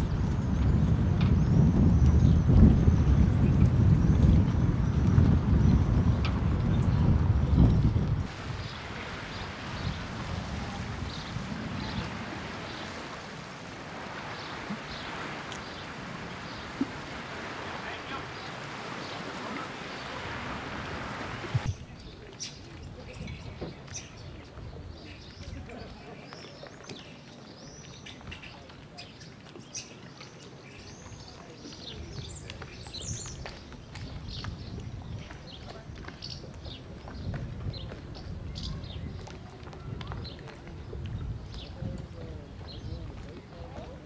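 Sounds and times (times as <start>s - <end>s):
small birds chirping: 0.0s - 10.1s, 14.2s - 17.1s, 21.6s - 44.0s
wind on microphone: 0.0s - 26.1s, 30.7s - 44.0s.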